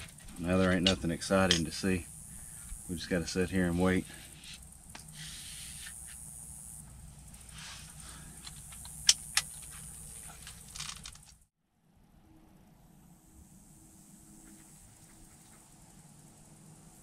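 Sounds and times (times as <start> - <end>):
crossbow sharp clicks: 8.4 - 9.7.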